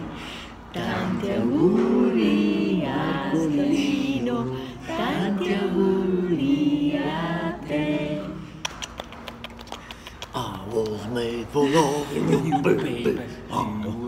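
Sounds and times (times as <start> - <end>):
voices singing without instruments: 0.0 - 9.0.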